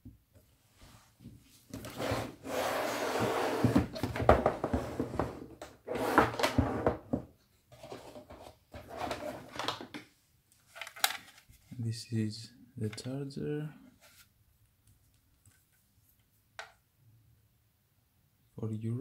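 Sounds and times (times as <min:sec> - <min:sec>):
rubbing and scraping with knocks: 0:01.7 - 0:09.8
hands handling plastic tool case: 0:07.8 - 0:11.7.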